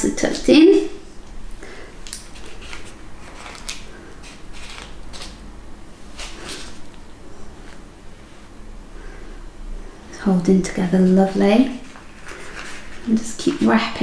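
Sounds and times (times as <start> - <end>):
paper rustling: 2.1 - 5.4, 11.8 - 13.9.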